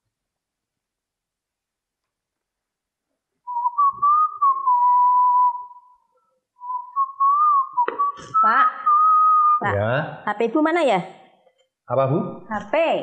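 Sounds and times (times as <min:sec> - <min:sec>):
person whistling a slow tune: 0:03.5 - 0:09.6.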